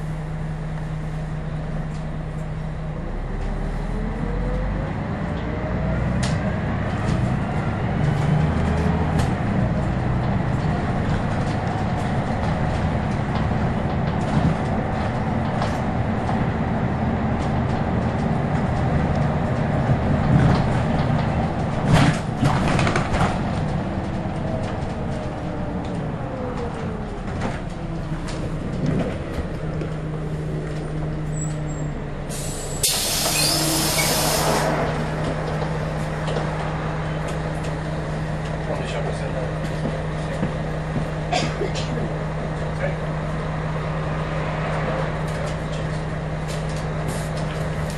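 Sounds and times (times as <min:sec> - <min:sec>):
bus diesel engine running: 0:00.0 - 0:47.9
compressed air hiss: 0:32.3 - 0:34.7.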